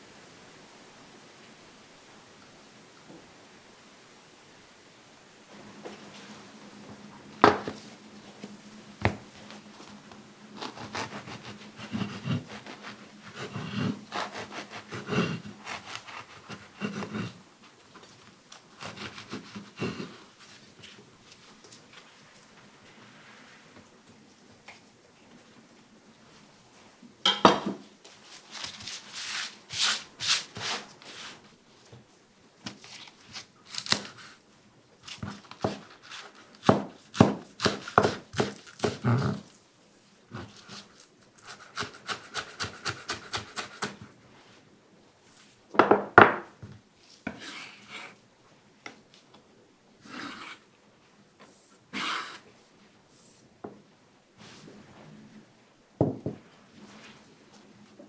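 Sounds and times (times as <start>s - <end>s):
knife scraping a board: 10.6s - 17.4s, 18.8s - 20.2s, 28.6s - 31.4s, 35.1s - 39.5s, 40.4s - 44.1s, 47.3s - 48.2s, 50.0s - 50.6s, 51.9s - 52.5s
knife chopping on wooden board: 36.6s - 39.0s.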